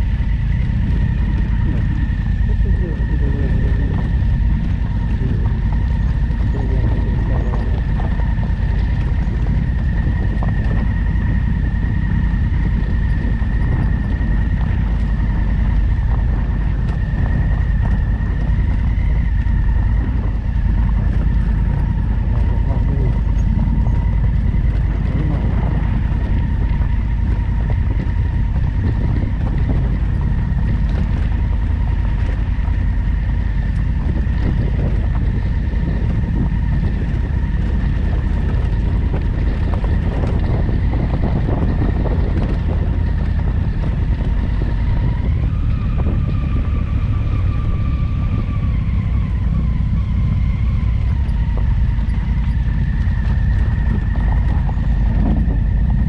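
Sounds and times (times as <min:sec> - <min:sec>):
motorcycle engine running: 0:00.0 - 0:56.0
thin steady whine: 0:00.0 - 0:56.0
wind rumbling on microphone: 0:00.0 - 0:56.0.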